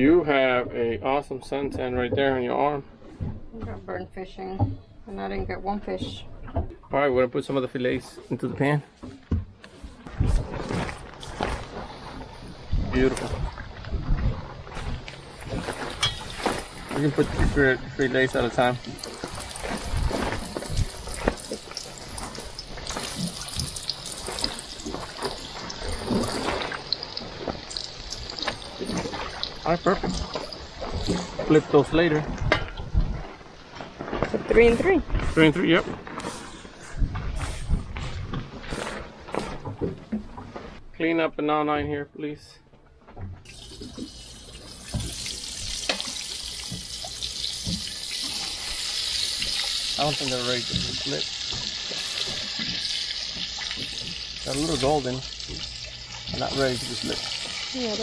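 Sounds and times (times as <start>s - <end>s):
fish frying in hot oil: 14.6s - 32.1s, 43.5s - 58.0s.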